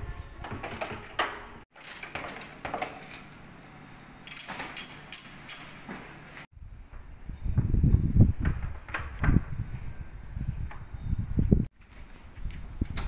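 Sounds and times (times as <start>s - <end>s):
hand tools clicking and knocking: 0.4s - 3.3s.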